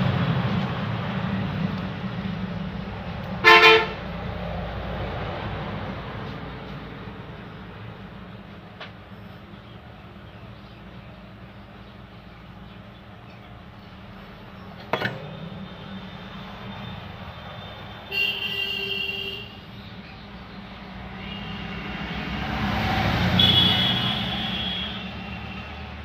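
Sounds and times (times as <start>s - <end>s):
vehicle passing: 0.0s - 8.4s, 20.4s - 26.0s
car horn toot: 3.4s - 4.0s, 18.1s - 19.6s, 23.4s - 25.2s.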